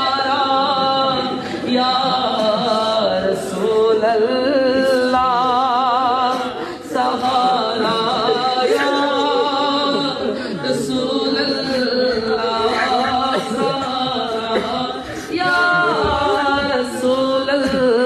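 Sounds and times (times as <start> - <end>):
man singing devotional song: 0.0 - 18.0.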